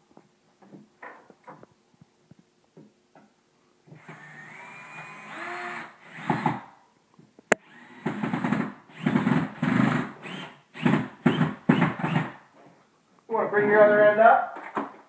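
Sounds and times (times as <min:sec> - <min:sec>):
cordless drill motor whining: 0:04.0 - 0:06.6, 0:07.5 - 0:08.3.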